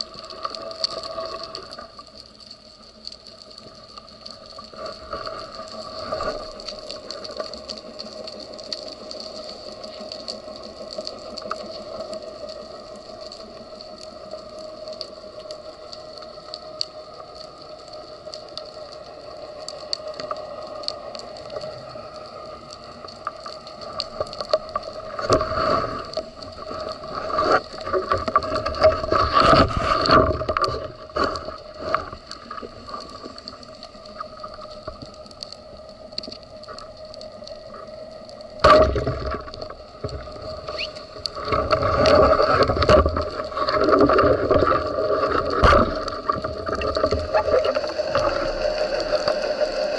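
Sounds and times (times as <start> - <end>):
fine crackling clicks: 0.0 - 49.9
steady underwater droning hum: 0.0 - 49.9
rustling scraping and knocking: 25.2 - 32.2.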